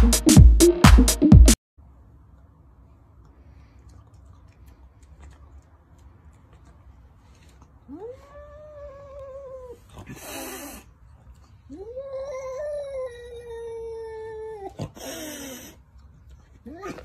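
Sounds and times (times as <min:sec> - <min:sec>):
cat hissing: 0:09.7 - 0:10.9, 0:14.8 - 0:15.8.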